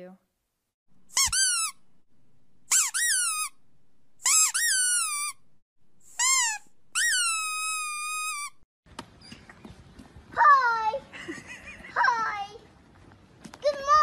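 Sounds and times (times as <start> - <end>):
high-pitched whining squeaks: 2.7 - 3.6, 4.2 - 5.4, 6.1 - 8.6.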